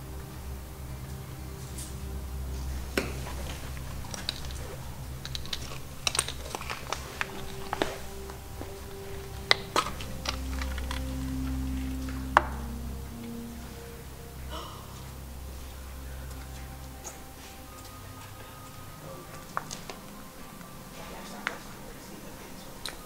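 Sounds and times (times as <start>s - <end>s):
background music low notes: 0.0s - 23.0s
low steady drone: 0.0s - 23.0s.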